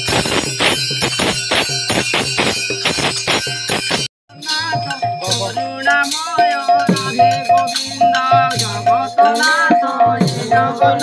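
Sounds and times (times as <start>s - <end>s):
hand cymbals clashing: 0.0s - 8.8s.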